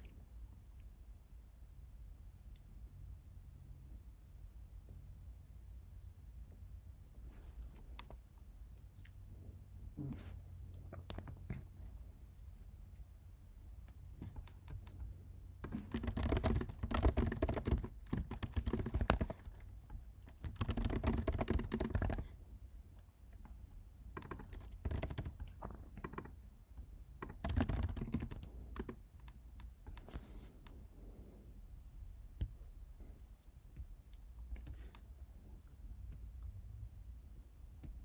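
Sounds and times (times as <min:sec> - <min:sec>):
typing on computer keyboard: 0:14.2 - 0:22.4, 0:23.3 - 0:26.4, 0:27.2 - 0:30.2.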